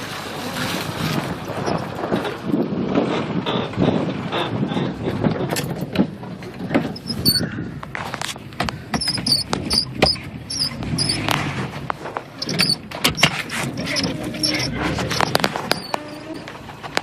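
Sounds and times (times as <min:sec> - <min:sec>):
low engine rumble: 0:00.0 - 0:17.0
knocks and rattles in car cab: 0:05.2 - 0:15.8
short high squeaks: 0:07.0 - 0:07.6, 0:09.0 - 0:11.4, 0:12.3 - 0:16.5.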